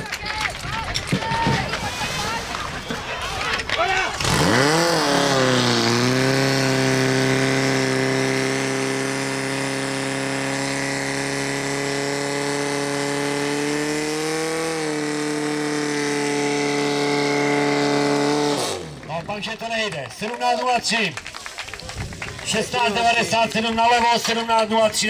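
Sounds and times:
petrol engine revving: 1.7s - 20.3s.

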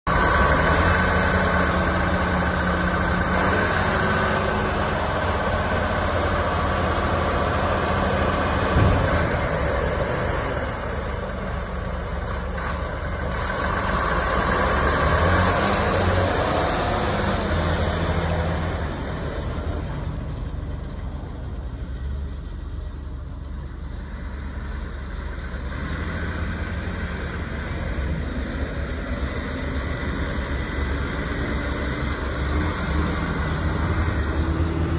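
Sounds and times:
dump truck diesel engine: 0.0s - 34.9s
sharp knock: 8.7s - 9.6s.

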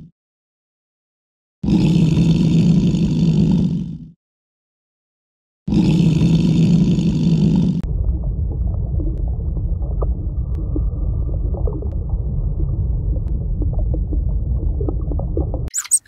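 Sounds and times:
underwater aquarium rumble: 7.2s - 15.7s.

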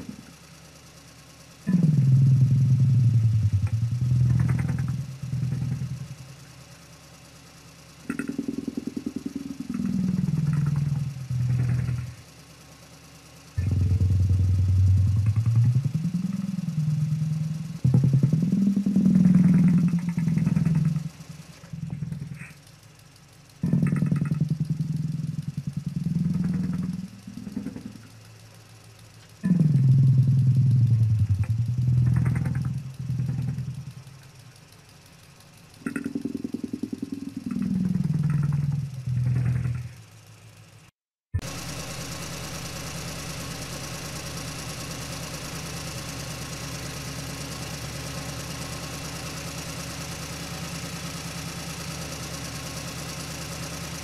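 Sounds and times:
person imitating truck engine with lips: 0.0s - 0.4s, 1.7s - 6.4s, 8.0s - 12.4s, 13.6s - 22.9s, 23.5s - 28.3s, 29.3s - 35.0s, 35.6s - 40.5s.

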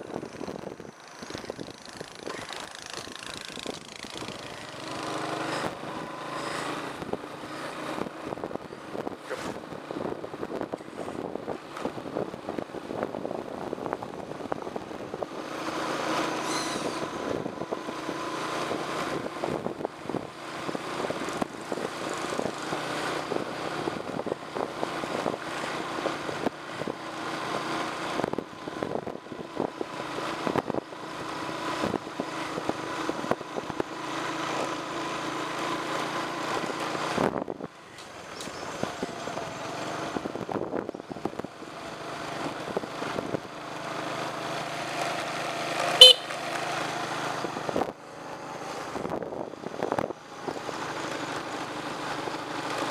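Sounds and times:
small motorbike engine running: 0.0s - 9.8s, 38.1s - 52.9s.

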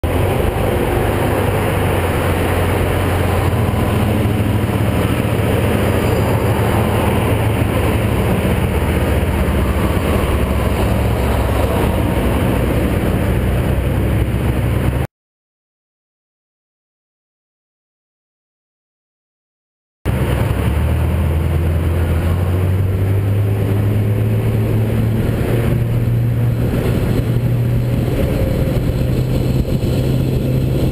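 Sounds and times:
engine and tyre drone: 0.0s - 15.1s, 20.1s - 30.9s
road and wind rush: 0.0s - 15.1s, 20.1s - 30.9s.

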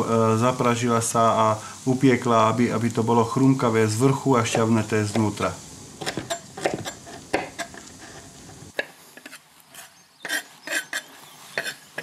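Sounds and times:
knife chopping on wooden board: 6.0s - 8.0s.

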